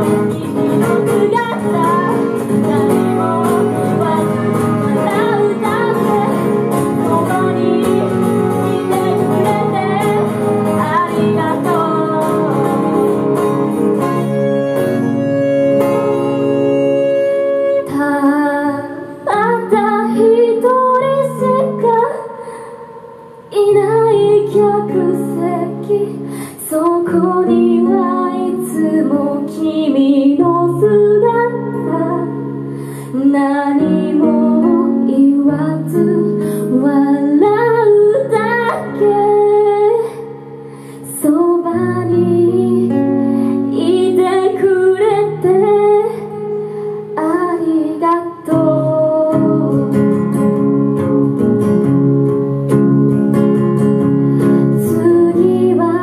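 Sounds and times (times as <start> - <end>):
young woman singing: 0.0 - 14.6, 16.0 - 51.4, 54.4 - 56.0
strummed acoustic guitars: 0.0 - 18.0, 24.2 - 56.0
held saxophone notes: 10.8 - 19.1.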